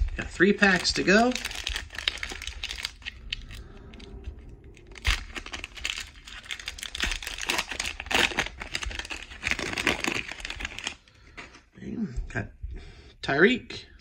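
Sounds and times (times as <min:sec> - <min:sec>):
foil wrapper crinkling and tearing: 0:00.0 - 0:03.7, 0:04.9 - 0:11.1.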